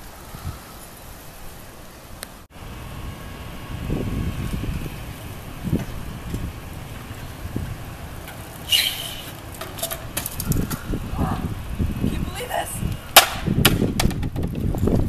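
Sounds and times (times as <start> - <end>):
bicycle rolling on asphalt: 0.0 - 15.0
indistinct voices: 11.0 - 12.9
helmet hitting road: 13.1 - 14.8.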